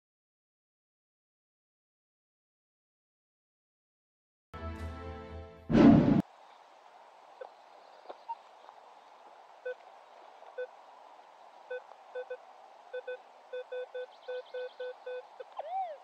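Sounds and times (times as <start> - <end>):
metal detector beeps: 13.0 - 16.0.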